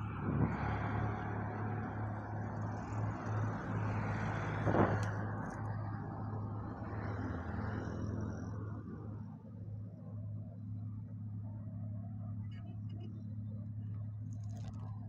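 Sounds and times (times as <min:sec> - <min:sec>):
vehicle passing close by: 0:00.0 - 0:09.1
vehicle engines humming: 0:00.0 - 0:15.0.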